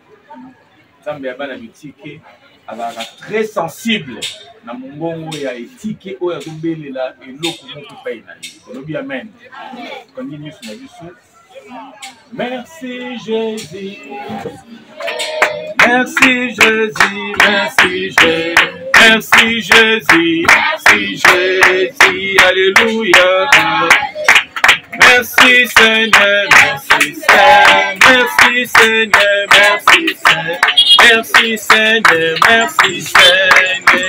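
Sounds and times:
hands clapping to a beat: 15.0 - 34.0.

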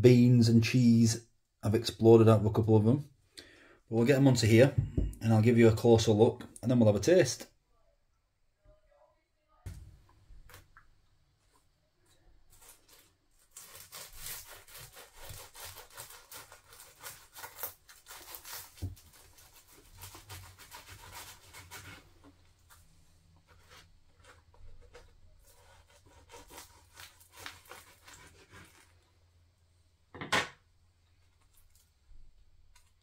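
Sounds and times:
knife sawing through crisp pastry: 12.5 - 22.3, 23.5 - 29.0.

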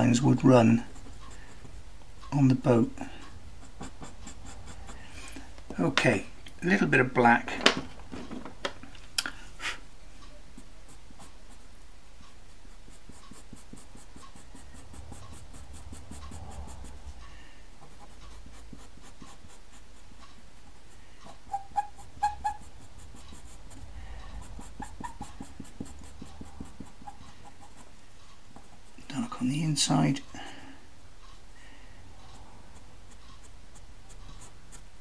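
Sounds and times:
pencil scratching on paper: 0.0 - 5.4, 10.5 - 29.6, 32.3 - 35.0.

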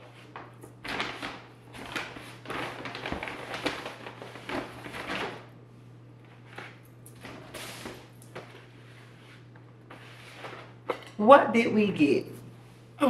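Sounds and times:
paper bags rustling: 0.0 - 5.6.

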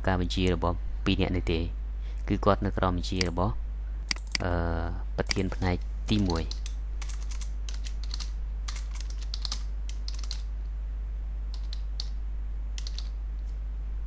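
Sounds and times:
steady low hum: 0.0 - 14.0
typing on a keyboard: 6.2 - 10.4, 11.6 - 12.2, 12.8 - 13.2.

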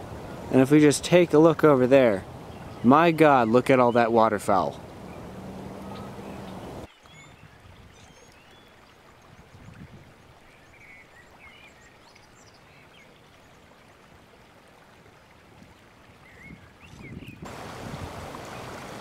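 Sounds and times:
stream running over rocks: 0.0 - 19.0
small birds chirping: 2.2 - 8.9, 16.2 - 17.4.

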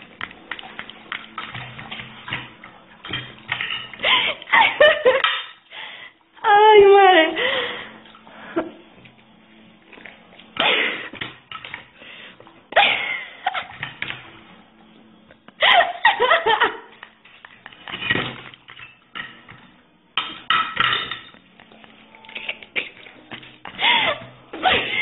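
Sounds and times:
people laughing: 4.0 - 5.3, 15.6 - 17.0.

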